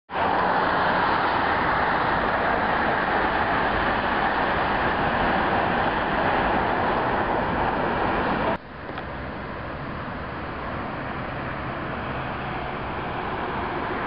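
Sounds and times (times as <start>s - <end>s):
road traffic rush: 0.1s - 14.0s.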